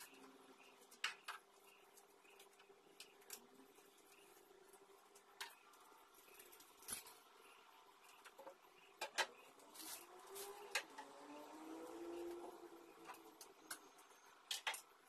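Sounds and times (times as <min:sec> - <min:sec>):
small objects clicking and knocking: 0:00.0 - 0:04.3, 0:13.0 - 0:15.0
faint steady hum: 0:00.0 - 0:15.0.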